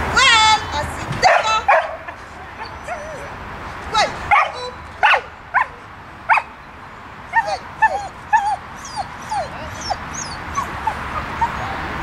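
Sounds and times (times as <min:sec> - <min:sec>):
dog barking: 0:01.2 - 0:02.1, 0:04.3 - 0:06.5
dog yelping: 0:02.6 - 0:03.4, 0:04.3 - 0:06.5, 0:07.3 - 0:12.0.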